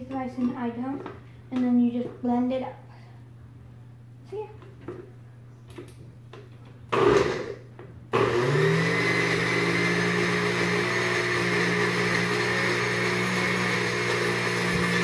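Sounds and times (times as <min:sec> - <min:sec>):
blender motor running: 0:06.9 - 0:15.0.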